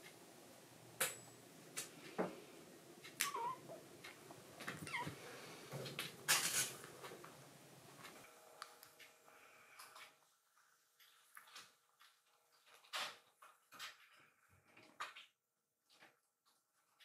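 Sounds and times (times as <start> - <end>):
kitten mewing: 3.2 - 3.8, 4.8 - 5.2.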